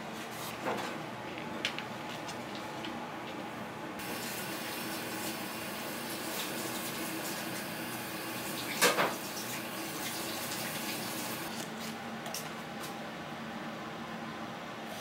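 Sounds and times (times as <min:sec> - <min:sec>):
tap water running into sink: 0:04.0 - 0:11.5.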